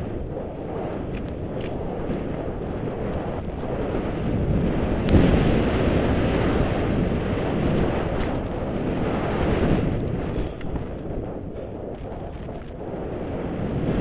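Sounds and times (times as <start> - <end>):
wind rushing over microphone: 0.0 - 14.0.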